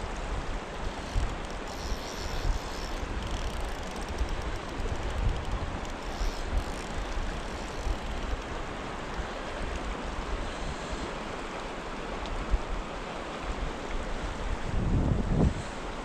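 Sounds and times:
river current rushing: 0.0 - 16.0
wind buffeting microphone: 14.2 - 16.0.

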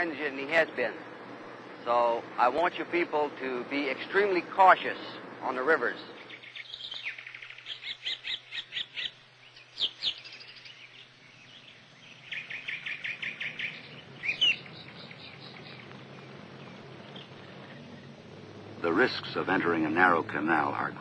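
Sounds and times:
bird chirping: 0.0 - 20.9
steady low hum: 0.0 - 21.0.

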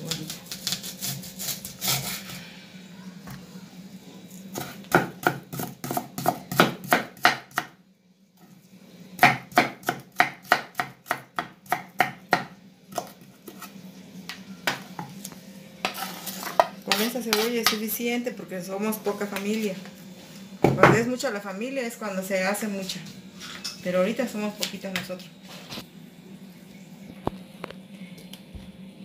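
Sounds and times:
knife chopping on wooden board: 4.6 - 7.7.

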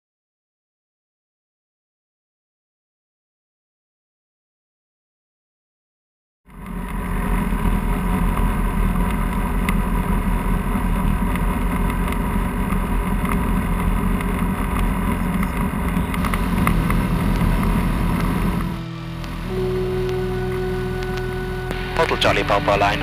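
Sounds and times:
aircraft engine and propeller: 6.5 - 23.0.

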